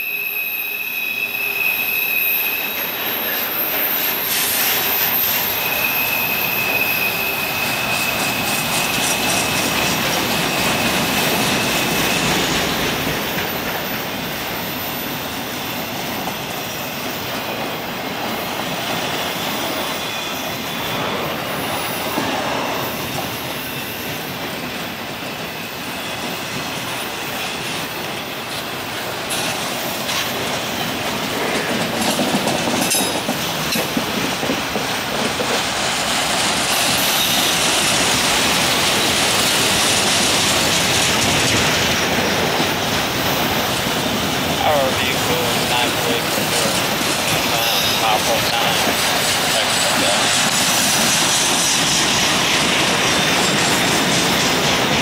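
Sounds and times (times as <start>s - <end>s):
thin wheel squeal: 0.0s - 12.5s
wheels clicking over rail joints: 28.5s - 47.8s
freight cars rumbling and rattling: 29.3s - 55.0s.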